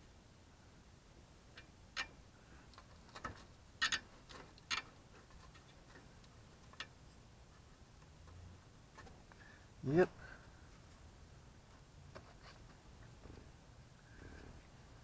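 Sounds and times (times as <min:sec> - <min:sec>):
sharp clicks of hose connections: 0:01.5 - 0:07.0.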